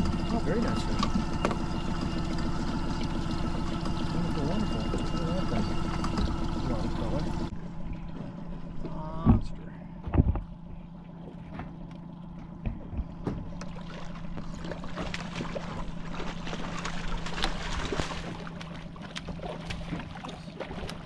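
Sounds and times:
outboard motor humming: 0:00.0 - 0:21.0
fish splashing at surface: 0:13.6 - 0:21.0.

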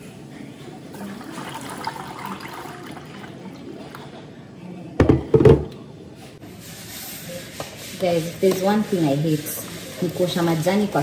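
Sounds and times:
water pouring into pot: 0:01.0 - 0:03.6.

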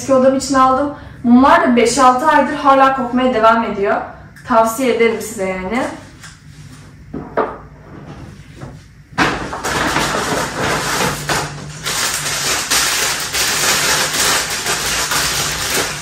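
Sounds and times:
packing wrap crinkling: 0:09.6 - 0:16.0.

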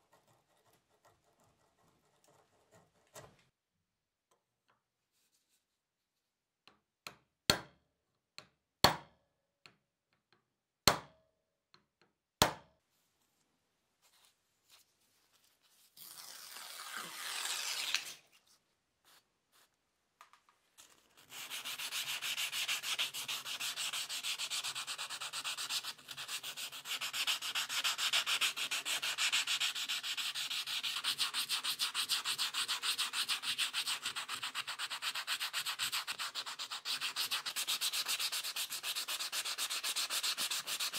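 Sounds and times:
hand sanding metal with sandpaper: 0:21.2 - 0:40.9.

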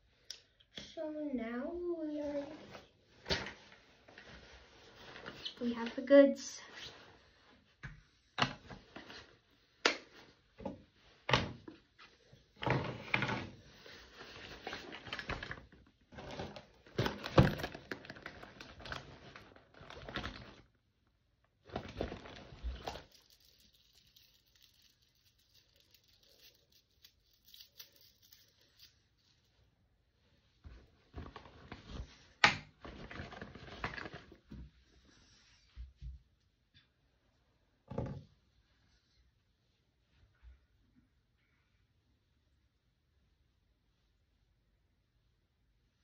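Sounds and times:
packaging rustling: 0:21.7 - 0:29.0
small objects clicking and tapping: 0:22.8 - 0:28.9.

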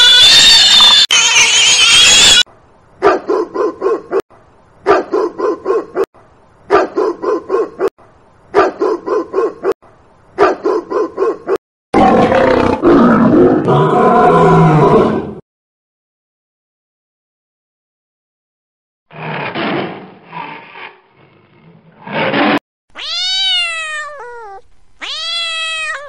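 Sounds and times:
dog barking: 0:03.0 - 0:04.2, 0:04.8 - 0:06.1, 0:06.7 - 0:07.9, 0:08.5 - 0:09.8, 0:10.4 - 0:11.6
deep rough growling roar: 0:19.1 - 0:22.6.

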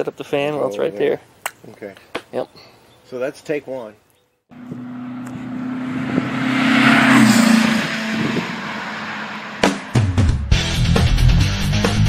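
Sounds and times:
vehicle engine passing by: 0:04.5 - 0:11.1.

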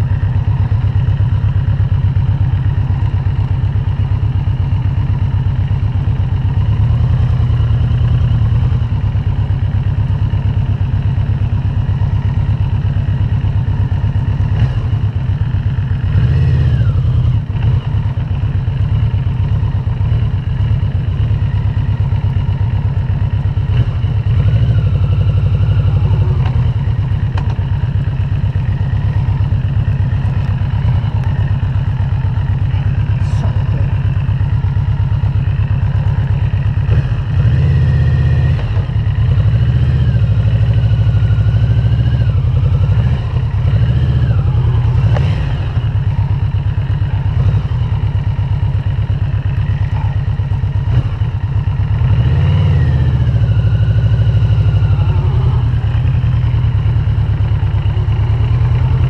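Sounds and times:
motorcycle engine throbbing: 0:00.0 - 0:59.0.

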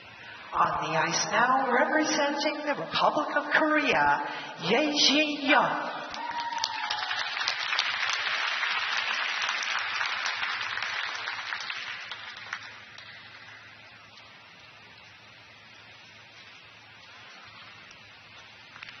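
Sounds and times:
crowd applauding: 0:06.1 - 0:13.5.

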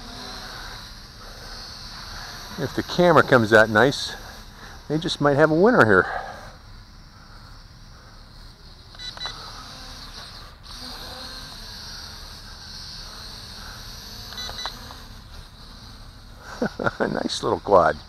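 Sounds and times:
quadcopter motors whining: 0:00.0 - 0:18.0
short electronic beeps: 0:08.9 - 0:09.5, 0:14.3 - 0:14.8.

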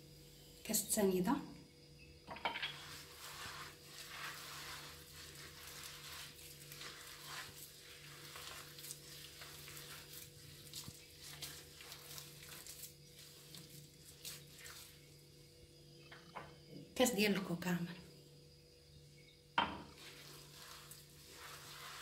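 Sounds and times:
hand mixing crumbly dough: 0:02.7 - 0:15.4, 0:19.9 - 0:22.0.

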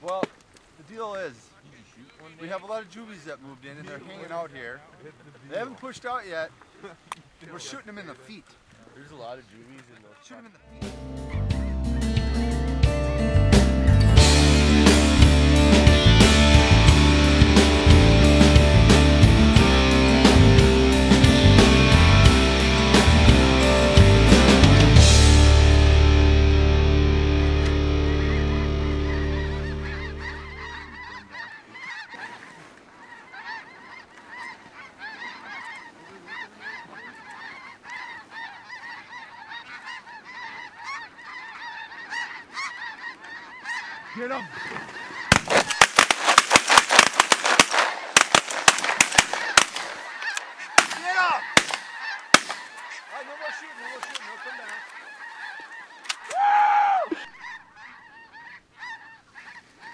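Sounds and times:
music: 0:10.7 - 0:30.8
snow geese honking: 0:11.3 - 0:59.9.

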